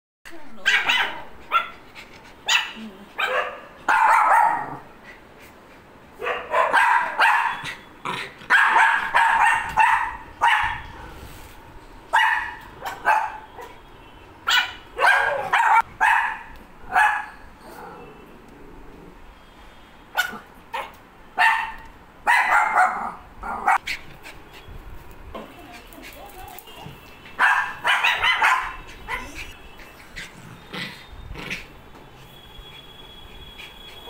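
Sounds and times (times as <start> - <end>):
small dogs barking: 0.6 - 1.8, 2.4 - 4.9, 6.2 - 7.8, 8.4 - 10.9, 12.1 - 13.8, 14.4 - 18.0, 20.1 - 23.9, 26.2 - 31.7.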